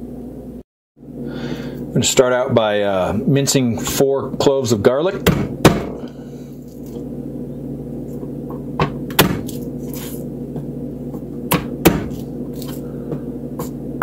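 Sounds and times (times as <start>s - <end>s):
low hum: 5.4s - 14.0s.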